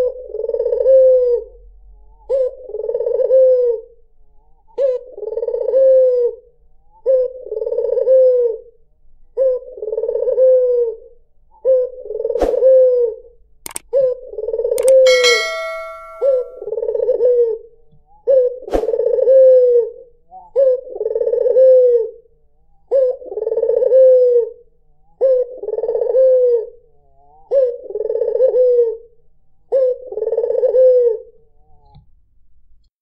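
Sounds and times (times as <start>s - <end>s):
sharp click: 14.8s - 16.4s
dove cooing: 27.5s - 29.0s, 29.7s - 31.2s.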